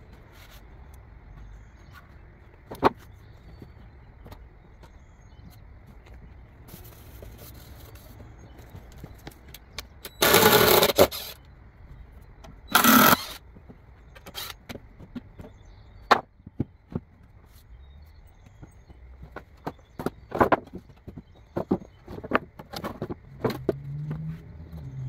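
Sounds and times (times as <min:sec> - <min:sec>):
wooden boards knocking: 0:15.0 - 0:17.2, 0:19.2 - 0:24.3.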